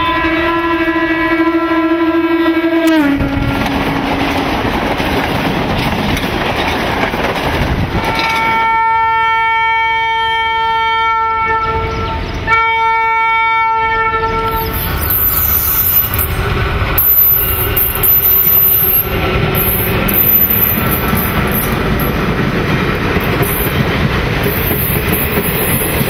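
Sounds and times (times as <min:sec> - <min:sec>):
train horn blasts: 0:00.0 - 0:04.8, 0:08.0 - 0:14.9
train wheels rumbling and clattering: 0:03.2 - 0:09.2, 0:14.4 - 0:26.0.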